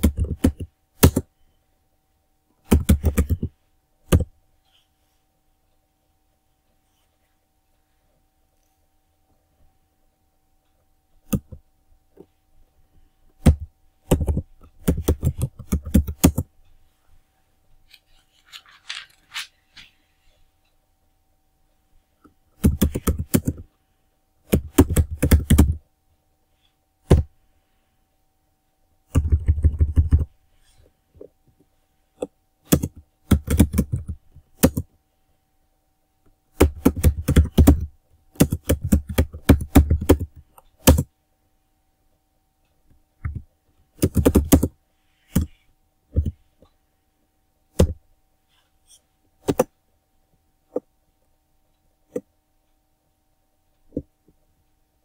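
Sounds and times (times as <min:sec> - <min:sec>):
typing on computer keyboard: 0:00.0 - 0:01.3, 0:02.7 - 0:03.5, 0:13.4 - 0:16.5, 0:22.6 - 0:23.6, 0:24.5 - 0:25.8, 0:29.1 - 0:30.3, 0:32.7 - 0:34.9, 0:36.6 - 0:41.1, 0:43.2 - 0:45.6.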